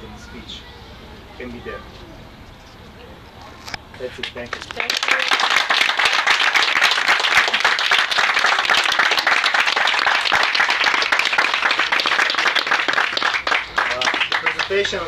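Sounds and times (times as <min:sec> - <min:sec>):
hands clapping close by: 0:04.2 - 0:15.0
crowd applauding: 0:04.8 - 0:15.0.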